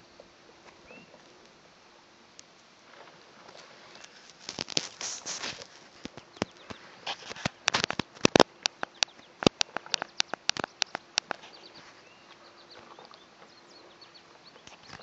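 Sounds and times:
faint bird chirps: 0:00.8 - 0:01.3, 0:08.8 - 0:15.0
sharp knocks and clicks: 0:06.0 - 0:11.5.

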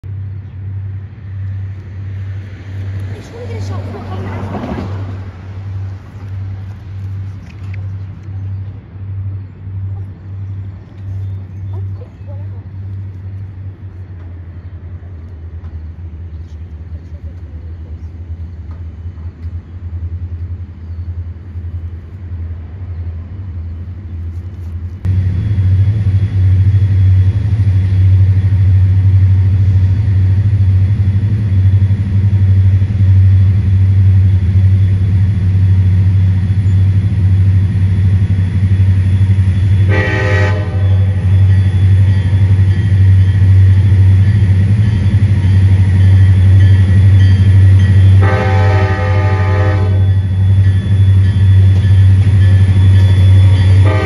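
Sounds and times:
diesel locomotive engine rumble: 0:00.0 - 0:54.0
train horn blast: 0:39.8 - 0:41.5, 0:48.1 - 0:50.3, 0:53.4 - 0:54.0.

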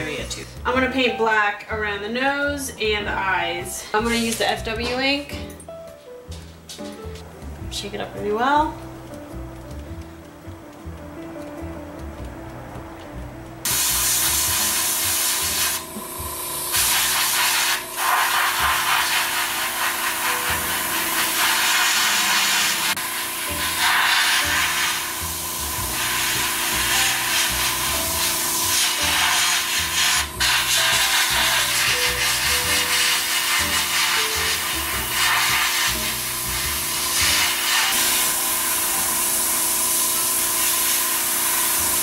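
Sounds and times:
airbrush hissing: 0:13.6 - 0:42.0.

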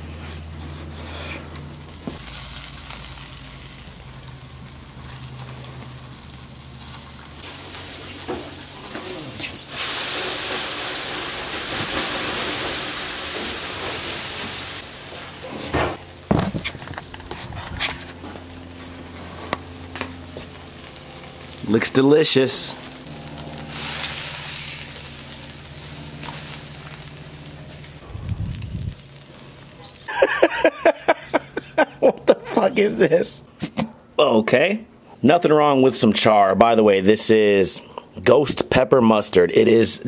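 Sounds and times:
patty sizzling: 0:00.0 - 0:32.2
steady hiss: 0:07.4 - 0:15.9.

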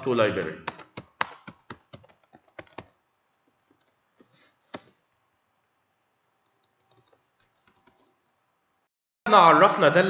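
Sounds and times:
computer keyboard keystrokes: 0:00.4 - 0:05.0, 0:06.5 - 0:08.1.

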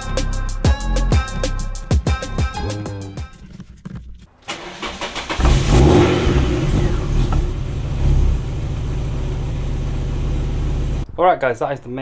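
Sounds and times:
car engine starting and idling: 0:04.4 - 0:11.0.

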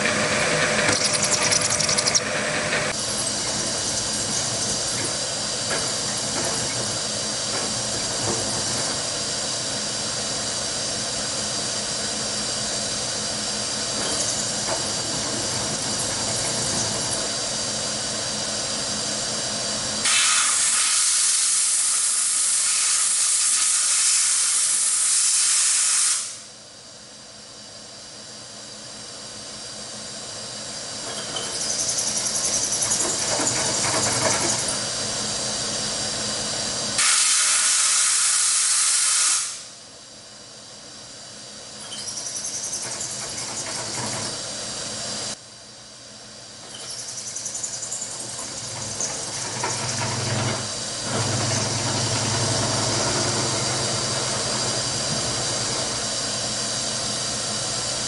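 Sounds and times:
milling machine running: 0:00.0 - 0:20.0, 0:46.6 - 0:58.0
compressed air hissing: 0:20.0 - 0:26.5, 0:37.0 - 0:39.8.

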